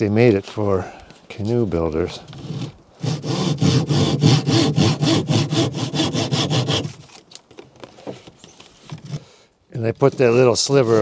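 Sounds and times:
handsaw cutting wood: 2.4s - 7.0s.

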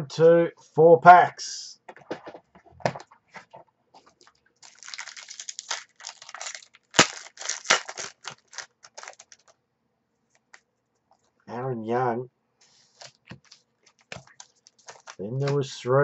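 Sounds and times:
wrapper crinkling and tearing: 4.1s - 9.6s, 13.0s - 15.5s
sharp crack: 5.0s - 9.2s.

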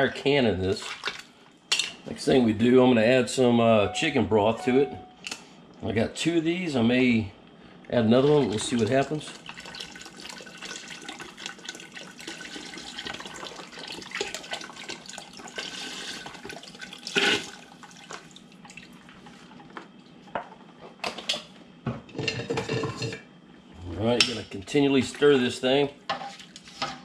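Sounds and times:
broth pouring into pot: 8.2s - 19.0s.

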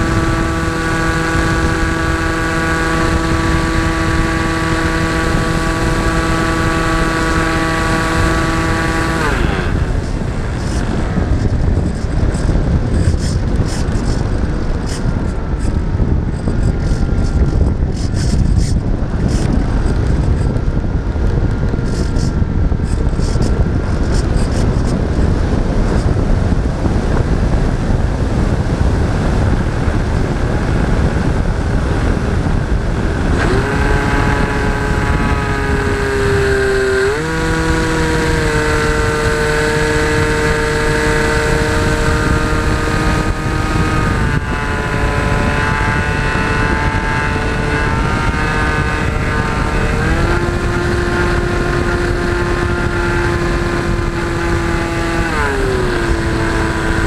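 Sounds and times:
propeller motor drone: 0.0s - 57.0s
wind rushing over camera: 0.0s - 57.0s.

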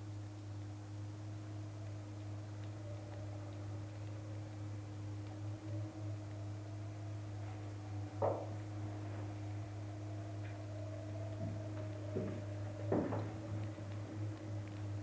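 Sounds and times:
faint steady tone: 0.0s - 15.0s
low electrical hum: 0.0s - 15.0s
soft knocks or rustles: 11.4s - 14.2s.

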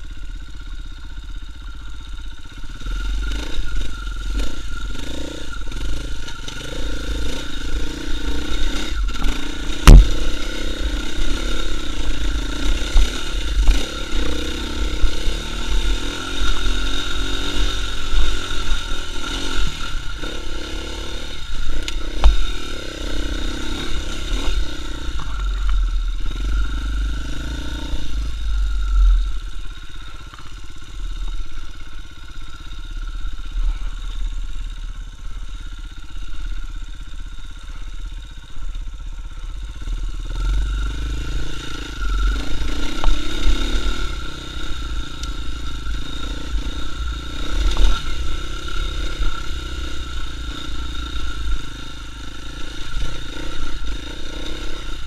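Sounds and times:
motorcycle engine revving: 0.0s - 55.0s
sharp knock: 9.8s - 10.4s.

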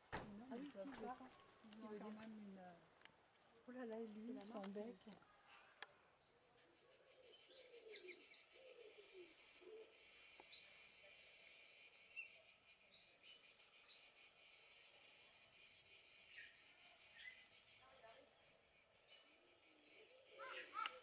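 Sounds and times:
faint clicks: 4.4s - 6.0s
insects chirring: 6.2s - 21.0s.

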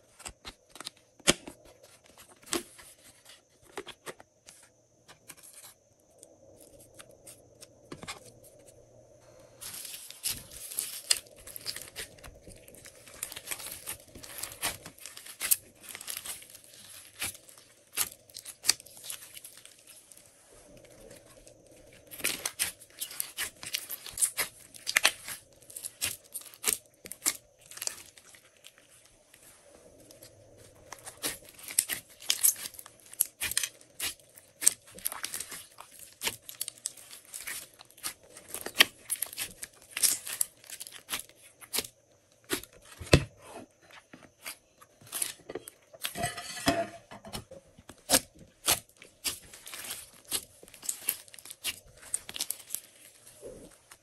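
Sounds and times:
slime crackling and squishing: 9.6s - 43.1s, 44.2s - 46.6s, 47.8s - 54.0s.

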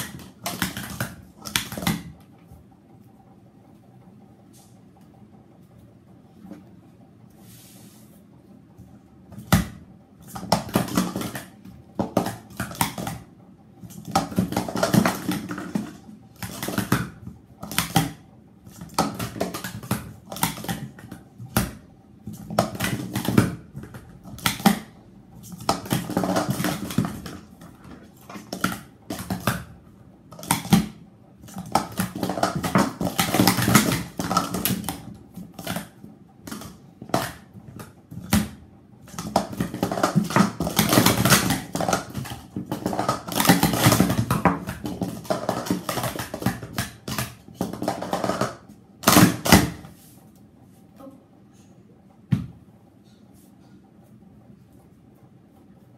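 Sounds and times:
plastic cups clattering: 10.2s - 13.2s, 13.9s - 29.6s, 30.3s - 35.9s, 39.1s - 49.8s.

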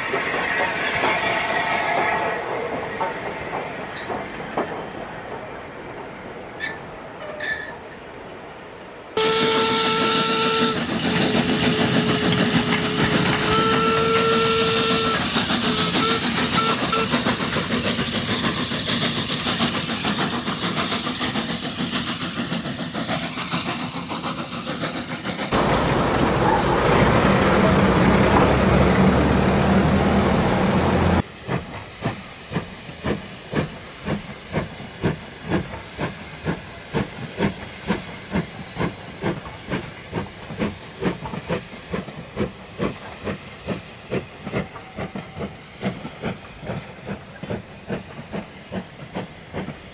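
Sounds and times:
model train running hiss: 9.3s - 29.6s, 30.9s - 49.9s.

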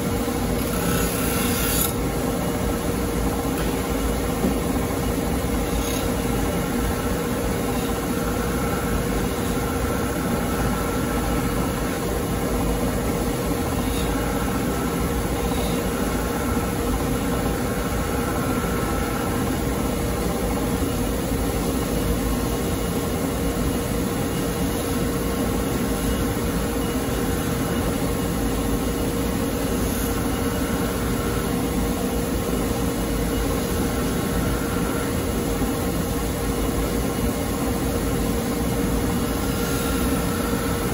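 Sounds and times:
bench polishing machine humming: 0.0s - 2.0s
knife polished on spinning wheel: 0.4s - 2.7s, 5.0s - 12.6s, 13.6s - 19.7s, 33.2s - 35.3s, 38.6s - 40.9s.

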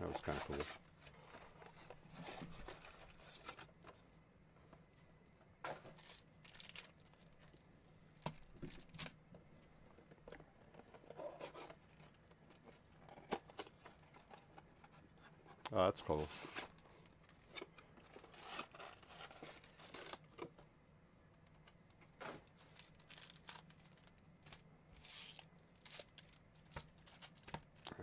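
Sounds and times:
foil packs crinkling: 5.9s - 7.6s, 18.0s - 20.4s, 22.4s - 28.0s
cardboard box tearing: 18.2s - 20.2s.

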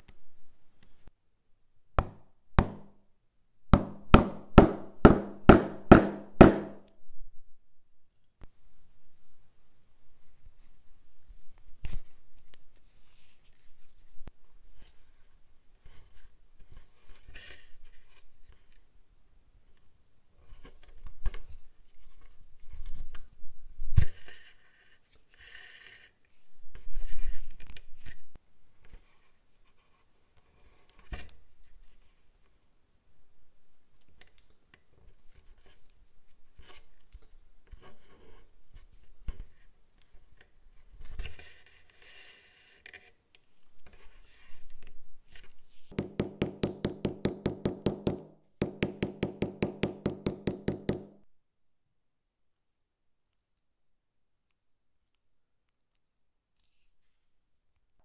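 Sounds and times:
small hammer tapping leather: 2.0s - 2.9s, 3.8s - 6.9s, 45.9s - 51.2s.

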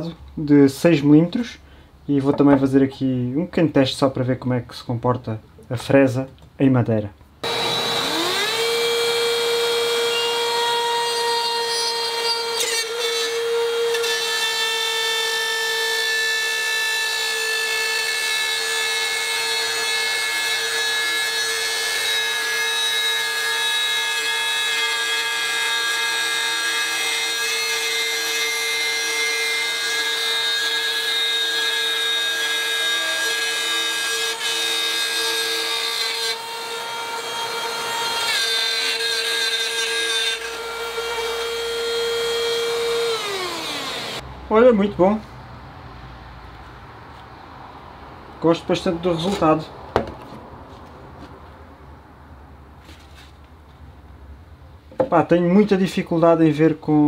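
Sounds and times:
rotary cutter whining through plywood: 7.4s - 44.2s.

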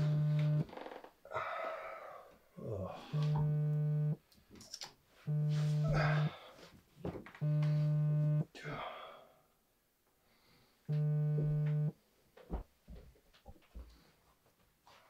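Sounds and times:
mobile phone vibrating: 0.0s - 0.7s, 3.2s - 4.2s, 5.3s - 6.3s, 7.4s - 8.4s, 10.9s - 11.9s
heavy ragged breathing: 5.7s - 6.7s.

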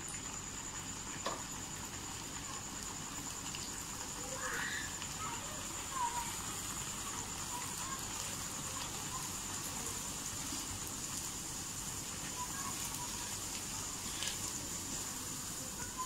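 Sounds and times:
oil sizzling with pops: 0.0s - 16.0s.

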